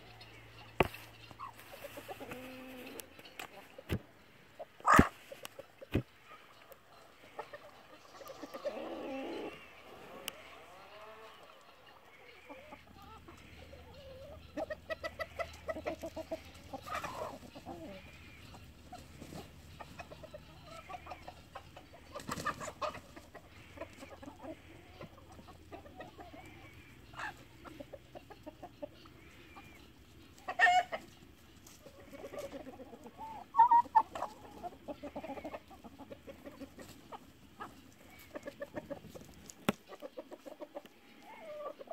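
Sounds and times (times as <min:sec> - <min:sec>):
chickens clucking: 0:00.0 - 0:41.9
sharp chicken calls: 0:00.0 - 0:41.9.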